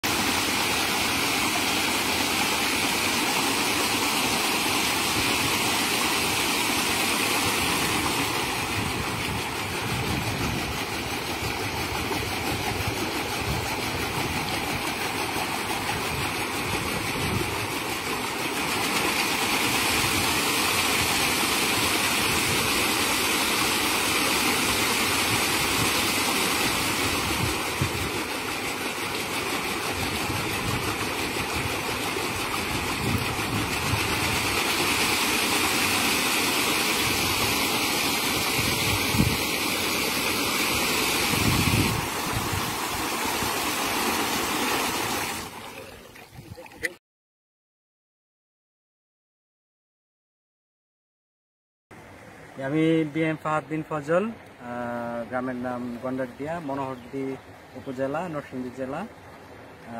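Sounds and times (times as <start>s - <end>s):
paddles splashing water: 0.0s - 47.0s.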